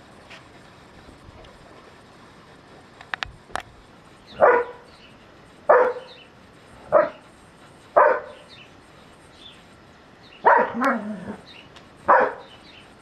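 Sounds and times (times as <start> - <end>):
dog barking deeply: 4.4 - 4.8, 5.7 - 6.1, 8.0 - 8.4, 10.4 - 11.4, 12.1 - 12.5.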